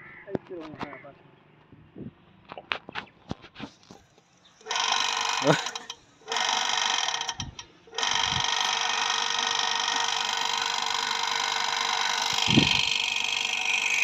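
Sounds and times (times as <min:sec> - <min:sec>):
electric water pump running: 0:04.6 - 0:14.0.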